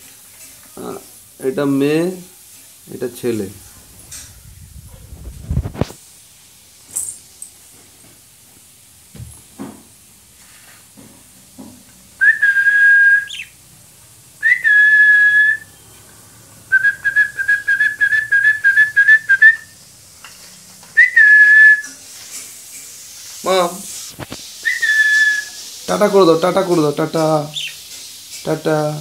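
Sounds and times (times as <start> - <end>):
person whistling: 12.2 - 13.5, 14.4 - 15.8, 16.7 - 19.8, 21.0 - 21.9, 24.6 - 25.6.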